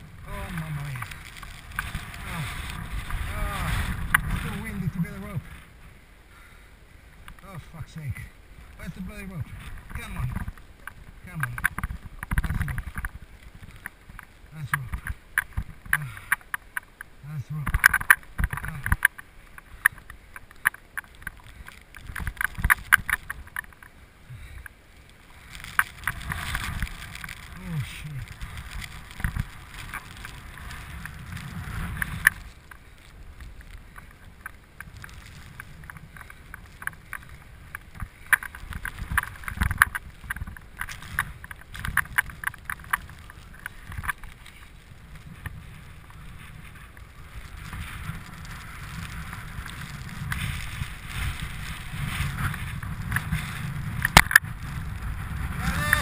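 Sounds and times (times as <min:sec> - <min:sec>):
rapid crackling clicks: 0:00.0 - 0:05.7, 0:07.2 - 0:56.0
wind buffeting microphone: 0:00.0 - 0:05.9, 0:25.4 - 0:56.0.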